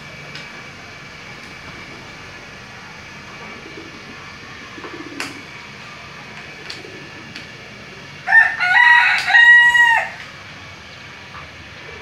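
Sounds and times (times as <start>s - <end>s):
rooster crowing: 8.2s - 10.2s.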